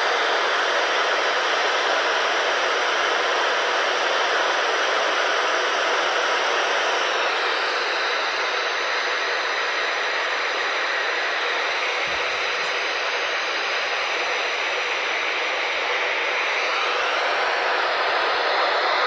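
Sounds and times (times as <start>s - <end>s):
radio static hiss: 7.1s - 18.7s.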